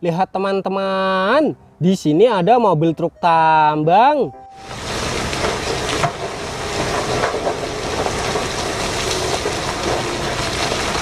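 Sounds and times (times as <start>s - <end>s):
rock and coal pouring out: 4.6s - 11.0s
truck machinery running: 4.6s - 11.0s.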